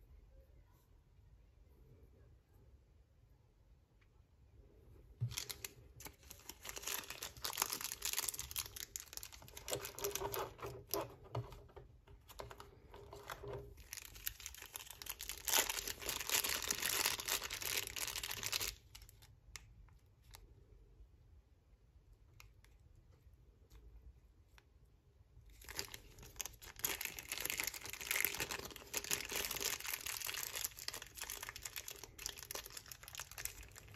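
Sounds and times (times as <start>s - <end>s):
plastic bag crinkling: 5.2s - 19.4s, 25.5s - 33.9s.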